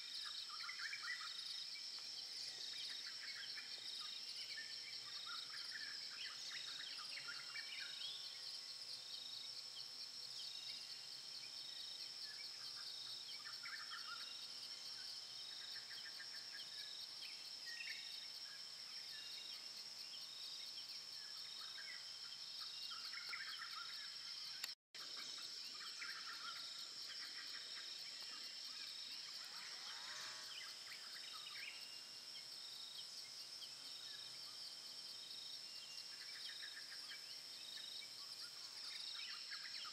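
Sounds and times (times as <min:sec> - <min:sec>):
high insect drone: 0:00.0 - 0:39.9.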